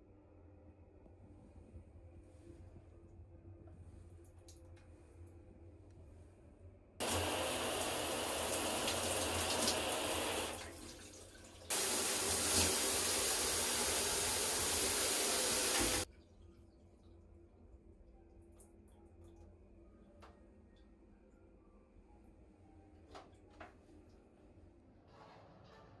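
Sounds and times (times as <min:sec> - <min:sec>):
shower water spraying: 0:07.0 - 0:16.1.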